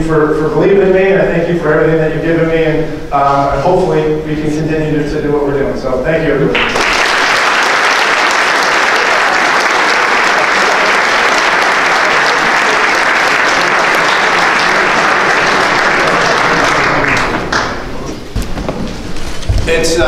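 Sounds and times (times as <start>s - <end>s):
audience applauding: 6.5s - 18.2s.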